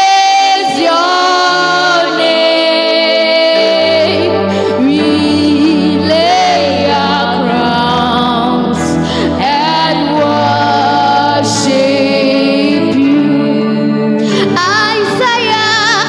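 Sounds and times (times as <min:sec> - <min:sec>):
sustained backing chords: 0:00.0 - 0:16.0
women singing gospel song: 0:00.0 - 0:16.0.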